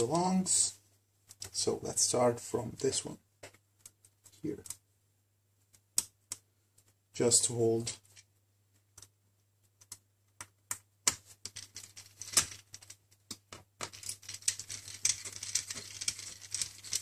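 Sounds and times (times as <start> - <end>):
rustling: 11.2 - 17.0.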